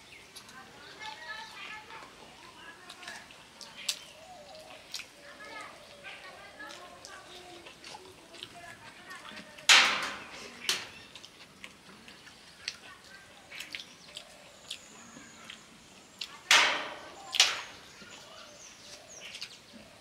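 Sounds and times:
wet lip smacks while eating: 13.6s - 15.6s.

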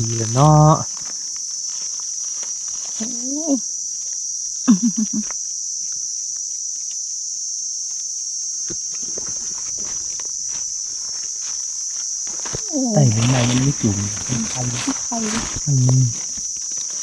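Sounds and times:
person wordless voice sounds: 0.0s - 0.8s, 12.6s - 16.2s
insects droning: 0.0s - 17.0s.

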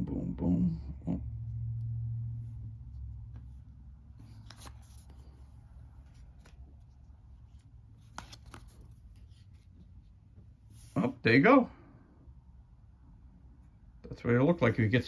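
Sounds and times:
low hum: 0.0s - 10.8s.

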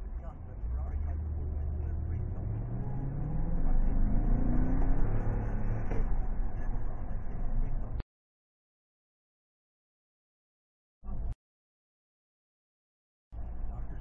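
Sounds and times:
pickup engine accelerating: 0.0s - 8.0s
road noise: 0.0s - 8.0s, 13.4s - 14.0s.

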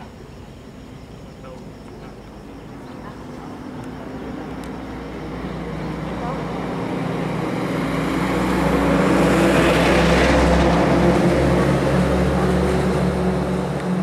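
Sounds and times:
heavy vehicle engine passing: 2.5s - 14.0s.

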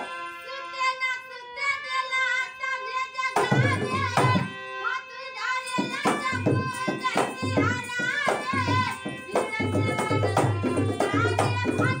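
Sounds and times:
harmonium chords: 0.0s - 12.0s
woman singing: 0.2s - 12.0s
dholak hand drum beat: 3.2s - 4.6s, 5.6s - 12.0s.

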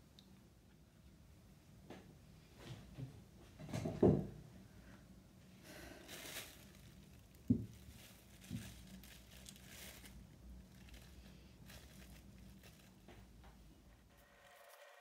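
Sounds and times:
plastic sheet crinkling: 5.9s - 13.4s.

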